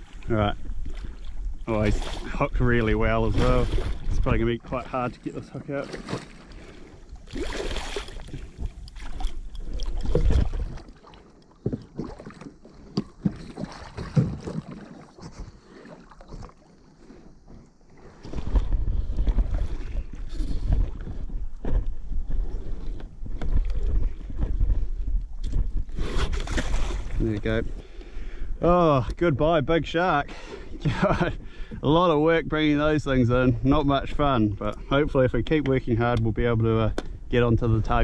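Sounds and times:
water splashes: 0:00.0 - 0:21.2, 0:23.5 - 0:27.6
wind buffeting microphone: 0:07.2 - 0:10.9, 0:18.1 - 0:28.6.

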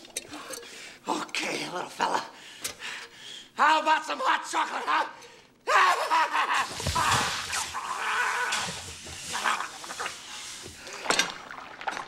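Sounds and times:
water pouring and splashing: 0:06.6 - 0:12.0.

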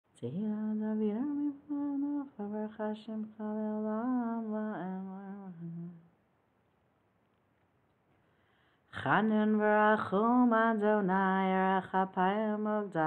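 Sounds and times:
woman singing unaccompanied: 0:00.1 - 0:06.1, 0:08.9 - 0:13.0.

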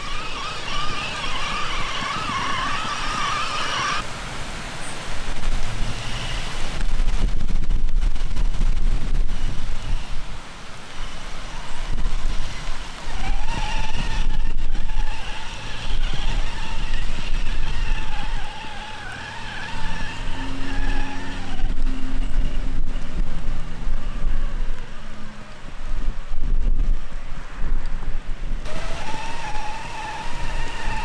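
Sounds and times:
rc truck motor whine: 0:00.0 - 0:04.0, 0:10.9 - 0:25.2, 0:28.6 - 0:31.0.

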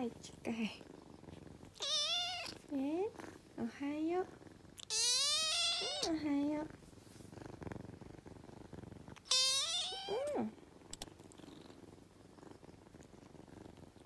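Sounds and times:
kitten purring: 0:00.0 - 0:14.0
kitten meowing: 0:01.8 - 0:02.6, 0:04.8 - 0:06.2, 0:09.2 - 0:10.5.

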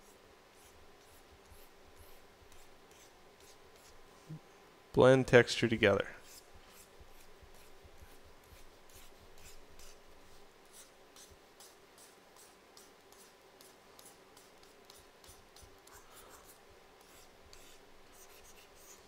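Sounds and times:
stylus scratching on graphics tablet: 0:00.0 - 0:04.3, 0:06.2 - 0:19.0.

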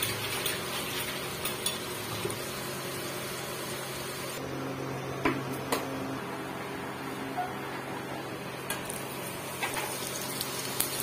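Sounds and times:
okra sizzling in hot oil: 0:00.0 - 0:04.4, 0:08.7 - 0:11.0.

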